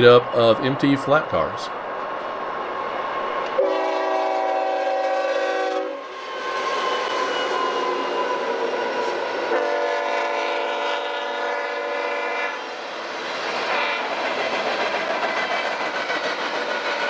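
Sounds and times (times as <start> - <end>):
rail cars rumbling and clattering: 0.0 - 17.0
locomotive air horn: 3.6 - 6.1, 9.5 - 12.7.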